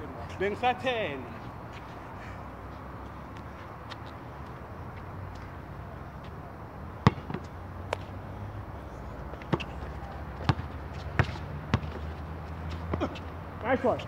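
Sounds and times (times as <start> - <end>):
low background noise: 0.0 - 14.0
basketball bouncing on court: 7.0 - 7.5, 9.5 - 9.7, 10.4 - 12.2.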